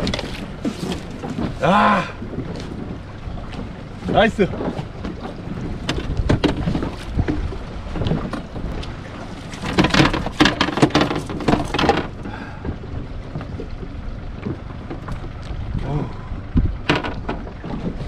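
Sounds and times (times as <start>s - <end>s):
wind on microphone: 0.0s - 9.0s, 15.5s - 18.0s
knocking and rattling on a boat: 0.0s - 18.0s.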